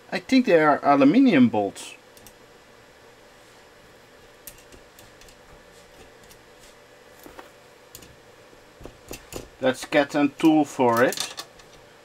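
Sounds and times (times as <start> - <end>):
faint steady hum: 0.0 - 12.0
small parts clicking and tapping: 2.2 - 2.4, 4.4 - 6.4, 7.9 - 8.2, 8.8 - 11.8.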